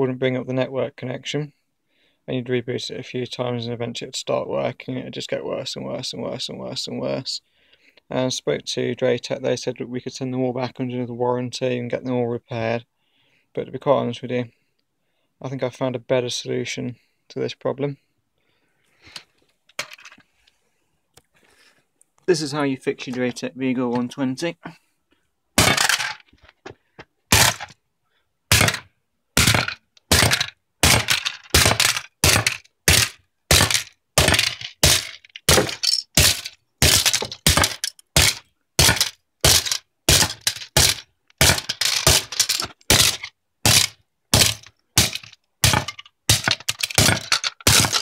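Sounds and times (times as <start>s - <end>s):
plastic case smashed on concrete: 25.6s - 26.2s, 27.3s - 27.8s, 28.5s - 48.0s.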